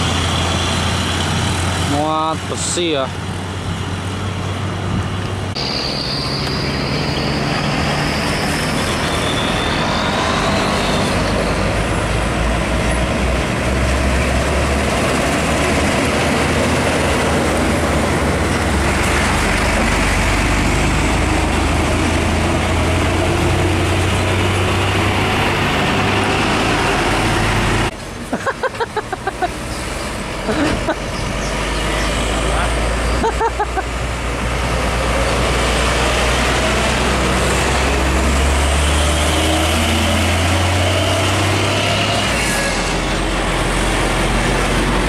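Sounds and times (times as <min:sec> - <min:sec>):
diesel truck engine rumbling: 0:00.0 - 0:45.0
road noise: 0:00.0 - 0:45.0.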